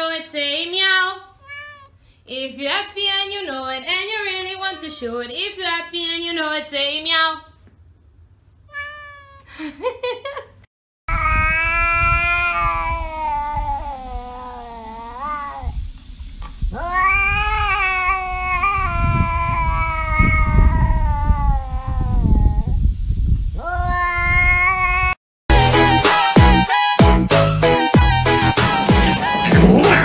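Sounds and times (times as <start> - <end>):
cat yowling: 1.4 - 2.0, 8.7 - 9.5, 11.1 - 15.8, 16.7 - 22.8, 23.6 - 25.2, 28.6 - 30.0.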